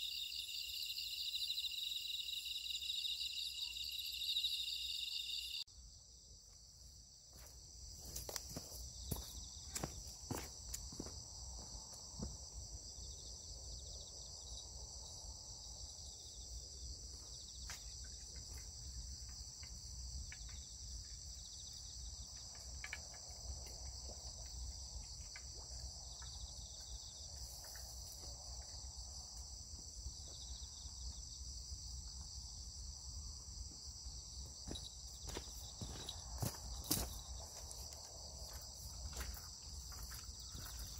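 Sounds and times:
crickets chirring: 0:00.0 - 0:40.9.

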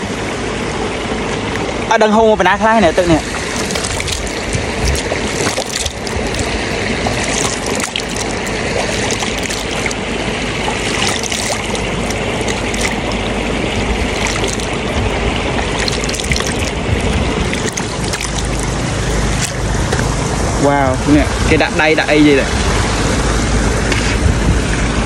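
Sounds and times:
water splashing and trickling: 0:02.8 - 0:21.2.

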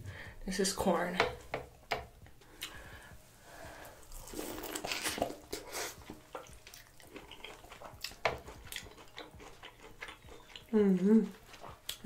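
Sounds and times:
wet mouth sounds: 0:04.0 - 0:12.0.

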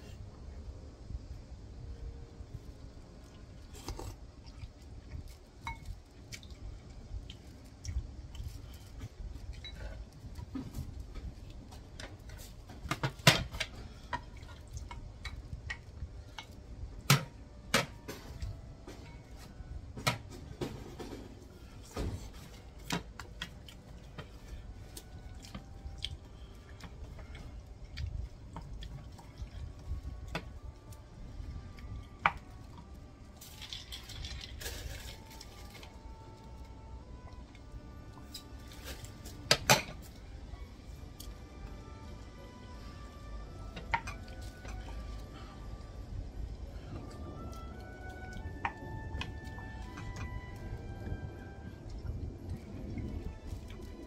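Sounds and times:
wet mouth eating sounds: 0:03.3 - 0:05.4.

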